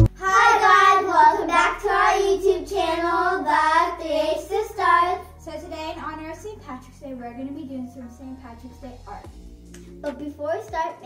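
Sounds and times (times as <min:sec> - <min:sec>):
girls singing together: 0:00.0 - 0:05.5.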